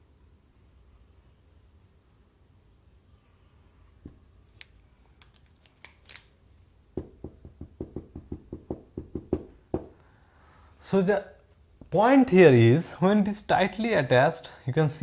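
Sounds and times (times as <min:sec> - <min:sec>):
marker tapping on whiteboard: 0:07.0 - 0:10.0.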